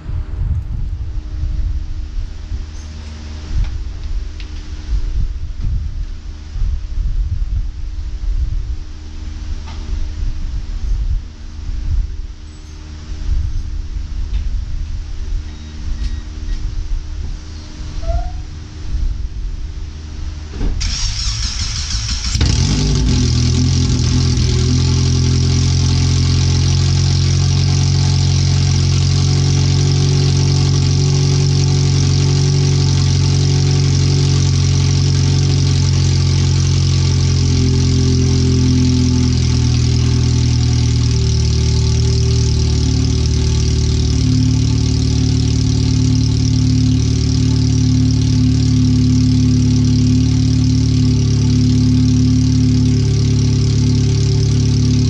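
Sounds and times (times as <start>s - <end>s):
car engine starting and idling: 18.6s - 55.0s.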